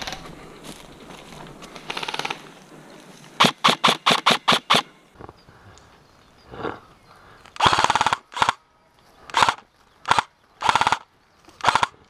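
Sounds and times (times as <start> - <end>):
airsoft rifle firing bursts: 3.4 - 4.9, 7.6 - 8.6, 9.3 - 12.0.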